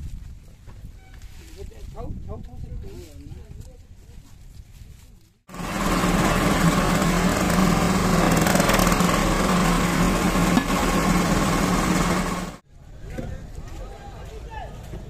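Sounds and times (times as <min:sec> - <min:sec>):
small engine running: 0:05.5 - 0:12.6.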